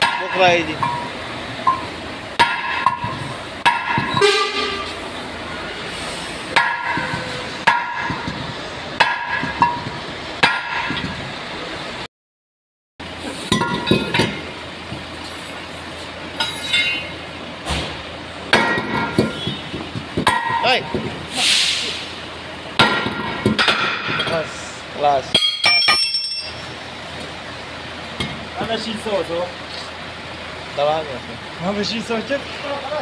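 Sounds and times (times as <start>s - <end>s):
hammer striking metal: 0.0s - 4.8s, 6.5s - 11.2s, 16.4s - 17.2s, 18.5s - 19.6s, 20.2s - 21.1s, 22.8s - 24.6s, 25.3s - 26.6s.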